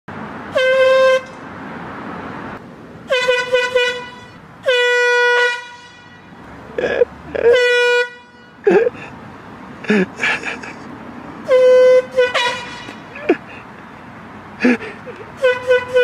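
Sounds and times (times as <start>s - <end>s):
air horn honking: 0.5s - 1.4s, 3.1s - 6.4s, 7.4s - 8.8s, 11.4s - 13.1s, 15.4s - 16.0s.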